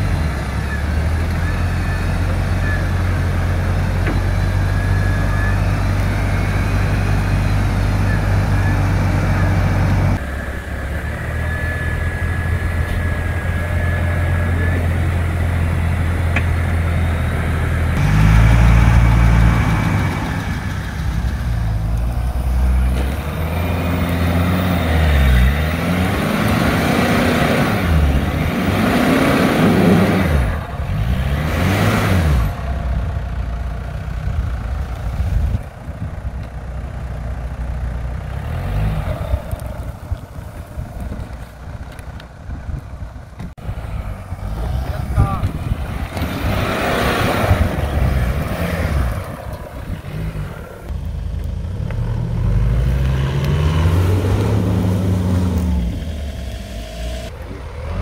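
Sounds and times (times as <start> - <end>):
car engine revving: 0.0 - 35.9, 36.8 - 58.0.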